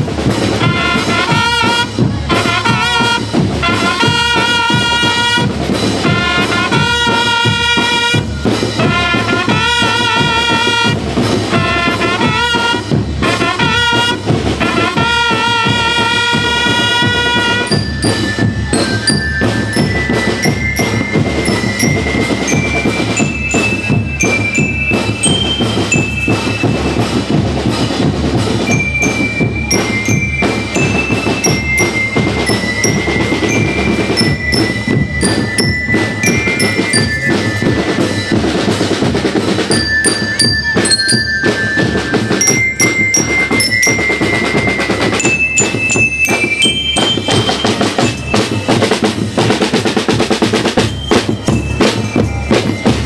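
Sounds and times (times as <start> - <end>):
marching drums: 0.0 - 53.0
bell lyre melody: 17.7 - 27.2, 28.7 - 38.6, 39.7 - 48.9, 50.8 - 53.0.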